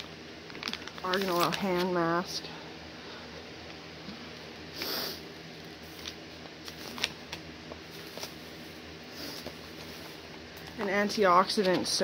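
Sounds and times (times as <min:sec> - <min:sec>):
steady low hum: 0:00.0 - 0:12.0
packaging rustle: 0:00.4 - 0:01.9, 0:05.8 - 0:10.2.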